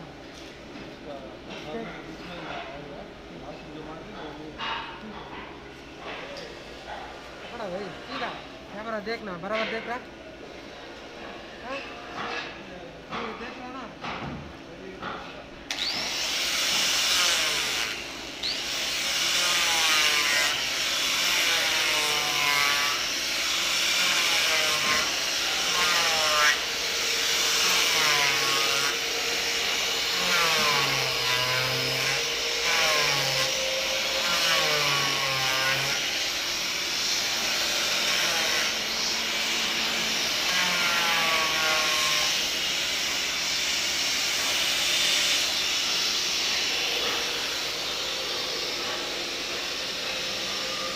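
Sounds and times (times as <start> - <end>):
electric disc sander sanding wood: 15.7 - 50.9.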